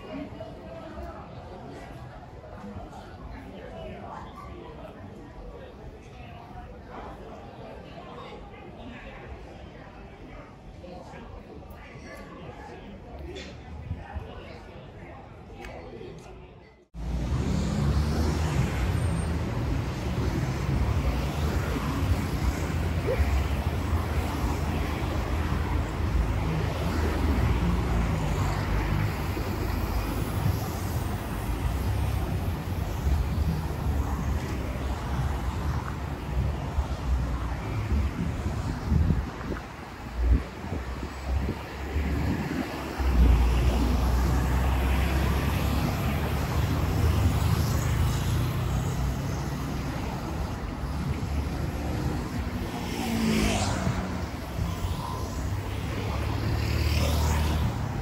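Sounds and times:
road traffic noise: 0:12.4 - 0:58.0
bus passing: 0:17.0 - 0:58.0
cars driving past: 0:17.0 - 0:58.0.

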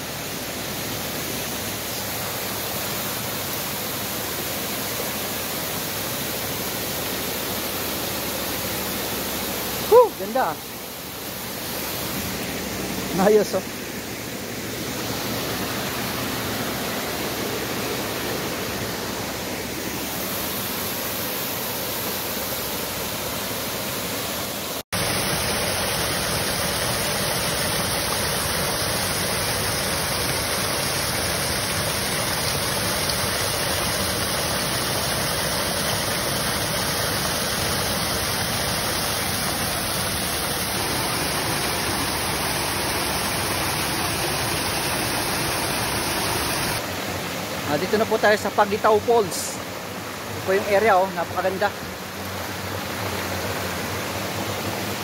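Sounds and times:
fast-flowing stream rushing: 0:00.0 - 0:55.0
small waterfall pouring into pool: 0:24.9 - 0:46.9.

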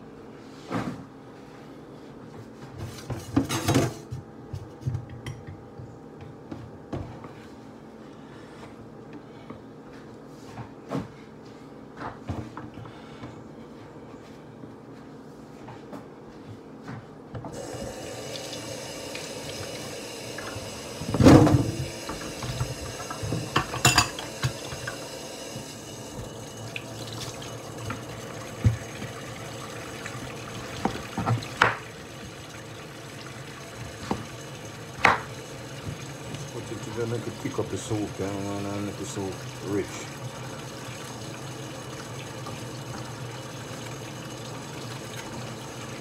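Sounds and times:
kitchen tap running: 0:17.5 - 0:46.0.

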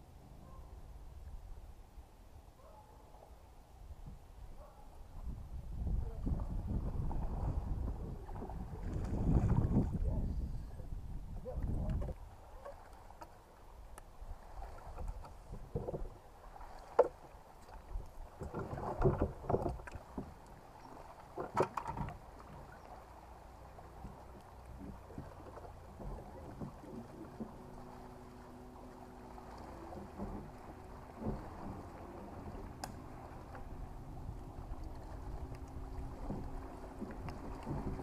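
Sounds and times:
knocks and thumps on boat: 0:14.9 - 0:22.9, 0:23.8 - 0:38.0.

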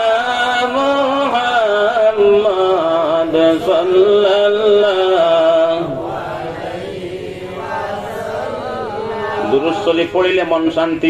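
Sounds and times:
man chanting: 0:00.0 - 0:06.5, 0:09.0 - 0:11.0.

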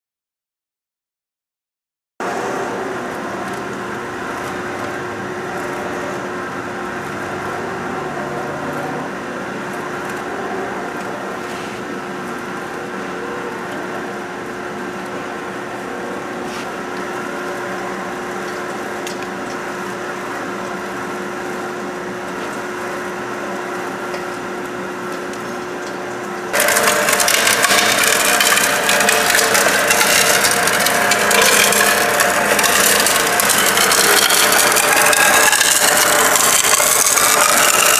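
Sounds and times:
shredder chewing plant stalks: 0:02.3 - 0:21.0, 0:23.5 - 0:37.9
shredder motor humming: 0:02.3 - 0:37.9
shredder shredding wood: 0:26.5 - 0:37.9.

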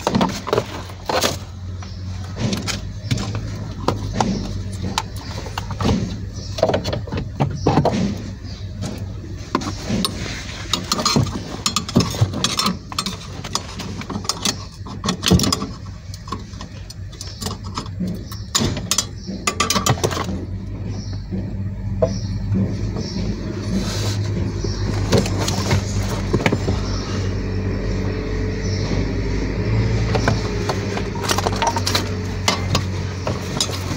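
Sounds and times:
steady low hum: 0:00.0 - 0:33.9.

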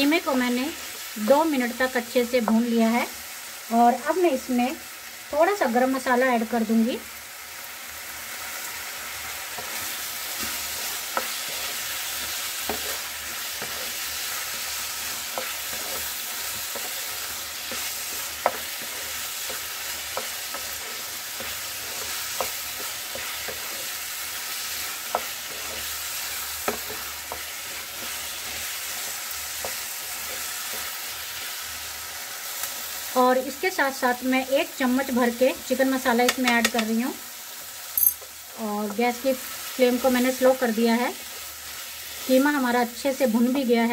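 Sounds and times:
mince and peas sizzling: 0:00.0 - 0:43.9
spatula scraping and tapping pan: 0:09.3 - 0:31.5, 0:36.1 - 0:37.0.

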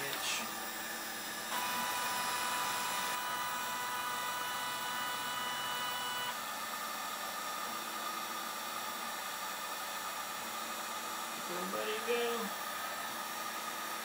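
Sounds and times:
stepper motors whining: 0:00.0 - 0:06.5
heat gun hissing: 0:00.0 - 0:07.6, 0:08.3 - 0:14.0.

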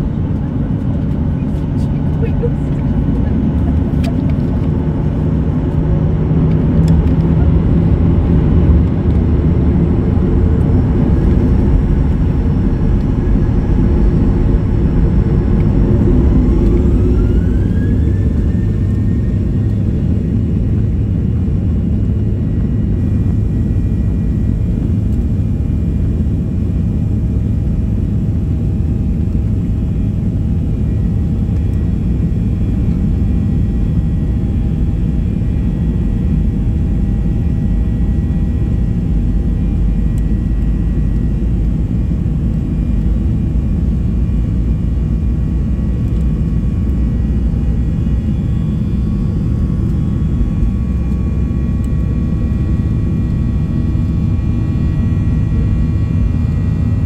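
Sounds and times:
deep rumble of engines and wheels: 0:00.0 - 0:57.0
jet engines whine: 0:00.0 - 0:57.0.

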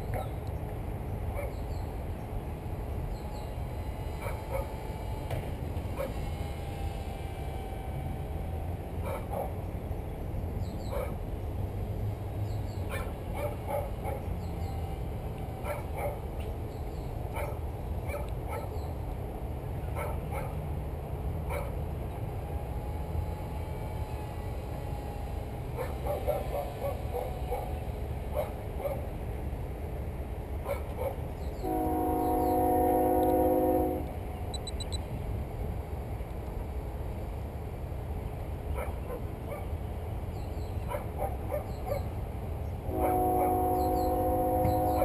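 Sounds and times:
dog barking: 0:01.4 - 0:01.6, 0:04.2 - 0:04.7, 0:09.0 - 0:09.6, 0:10.9 - 0:11.2, 0:12.9 - 0:14.3, 0:15.6 - 0:16.2, 0:17.4 - 0:18.8, 0:20.0 - 0:20.6, 0:21.5 - 0:21.8, 0:25.8 - 0:27.7, 0:28.4 - 0:29.0, 0:30.6 - 0:31.2, 0:38.7 - 0:39.7, 0:40.9 - 0:42.1.

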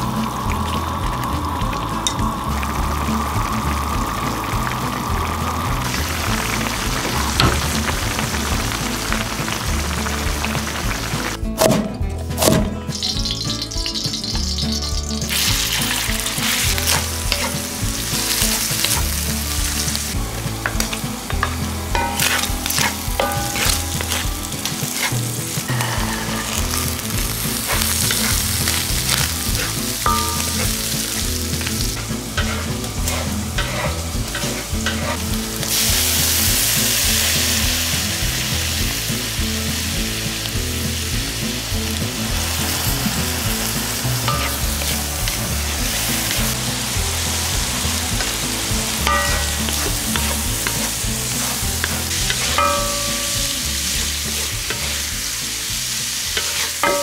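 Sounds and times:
food sizzling in wok: 0:00.0 - 0:57.0
wooden spatula scraping wok: 0:14.0 - 0:38.0, 0:40.8 - 0:57.0.

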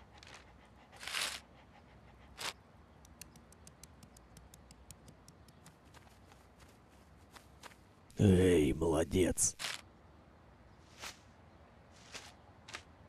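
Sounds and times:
cartoon dog footsteps: 0:02.4 - 0:07.8.

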